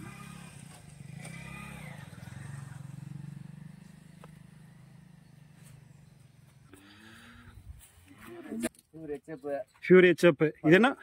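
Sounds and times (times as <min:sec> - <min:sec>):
engine humming: 0:00.0 - 0:08.1.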